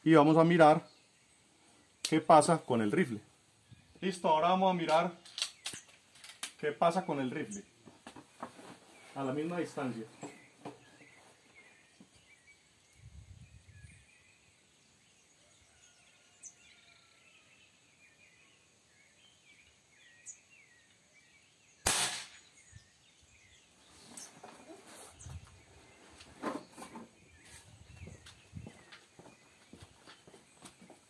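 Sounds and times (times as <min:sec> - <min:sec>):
air rifle shot: 0:21.8 - 0:22.5.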